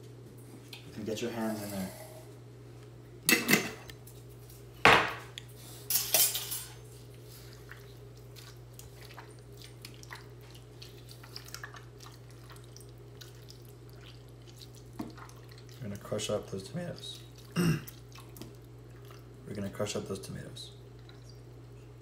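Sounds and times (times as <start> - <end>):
hands squelching tomatoes: 7.0 - 20.3.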